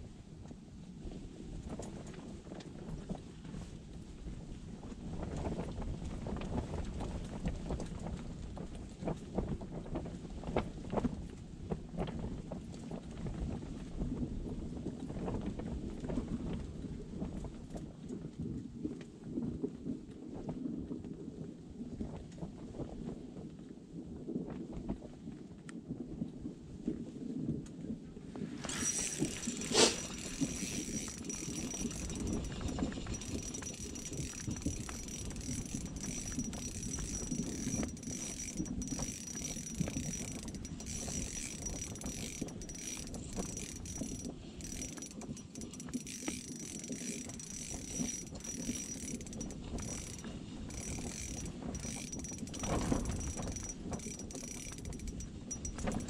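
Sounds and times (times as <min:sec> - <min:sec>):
fishing reel gears ticking: 0:28.6 - 0:56.0.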